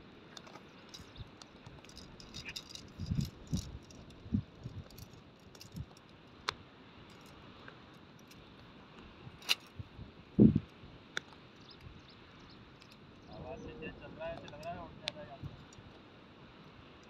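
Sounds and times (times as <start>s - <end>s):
tent pole sections clicking: 0.3s - 9.8s, 14.4s - 16.0s.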